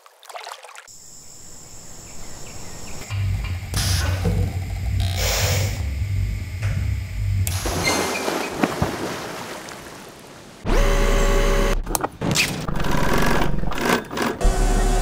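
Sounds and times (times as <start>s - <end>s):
motor humming: 0.9s - 8.1s, 10.7s - 11.9s, 12.7s - 15.0s
industrial sewing machine running: 12.8s - 15.0s.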